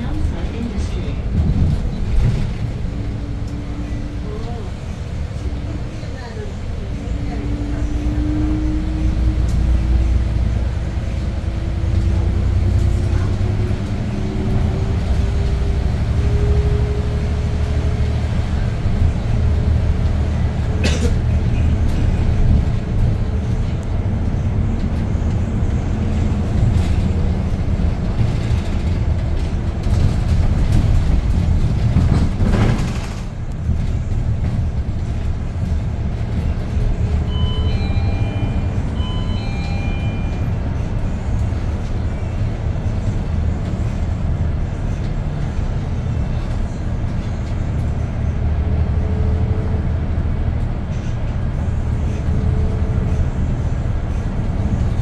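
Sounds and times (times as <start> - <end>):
bus engine and road rumble: 0.0 - 55.0.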